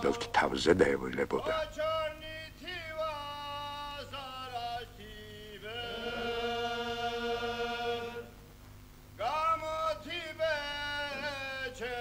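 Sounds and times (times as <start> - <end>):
unaccompanied chant-like singing: 0.0 - 8.4, 9.2 - 12.0.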